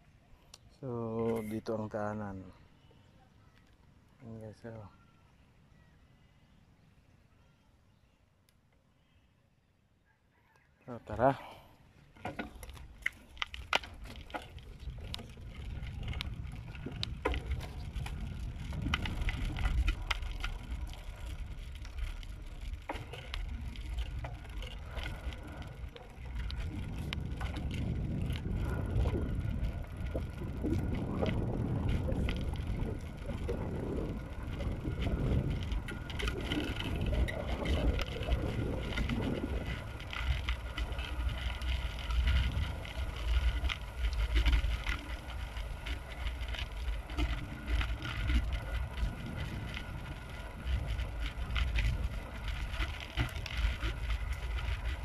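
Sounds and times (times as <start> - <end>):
bicycle clicks and rattles: 12.0 - 55.0
wind buffeting microphone: 14.0 - 55.0.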